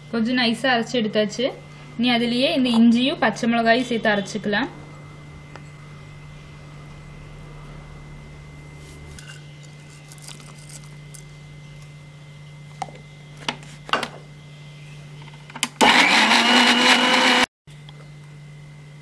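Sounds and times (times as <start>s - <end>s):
mixer grinder running: 15.6s - 17.5s.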